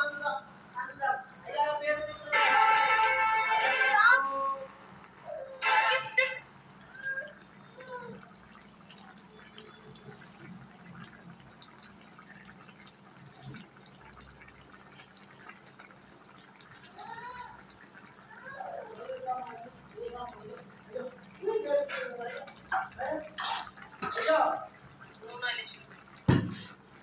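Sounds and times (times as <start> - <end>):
faint voice-like sound: 3.9 - 5.8, 6.9 - 8.4, 18.2 - 23.3
curry simmering in a pot: 4.3 - 27.0
faint bubbling pops: 6.8 - 27.0.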